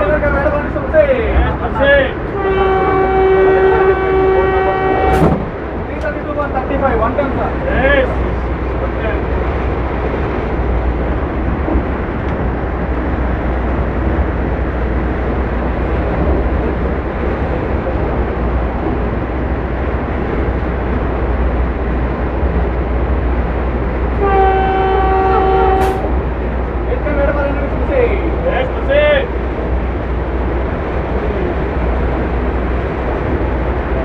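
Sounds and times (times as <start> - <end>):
electric train rumble and rushing: 0.0 - 34.0
train horn: 2.3 - 5.4, 24.1 - 26.2.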